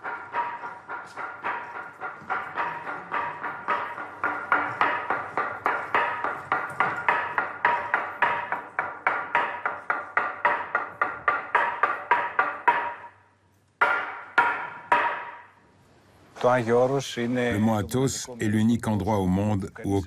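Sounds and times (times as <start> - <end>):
wooden board struck with mallet: 0.0 - 13.2, 13.8 - 15.6.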